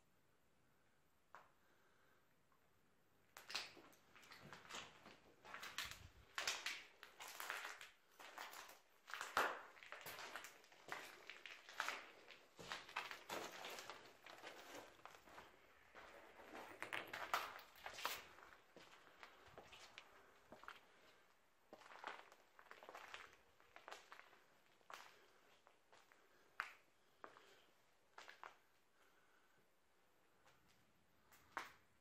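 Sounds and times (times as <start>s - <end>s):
footsteps crunching over rubble: 3.4s - 27.6s.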